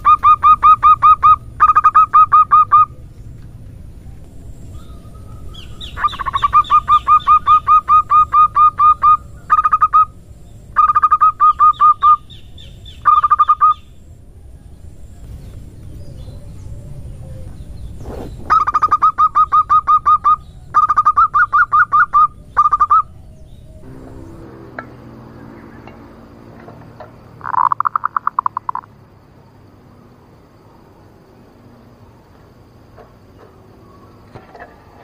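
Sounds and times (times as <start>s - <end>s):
dove calling in rapid notes: 0.0s - 3.1s, 4.6s - 13.9s, 18.4s - 28.9s.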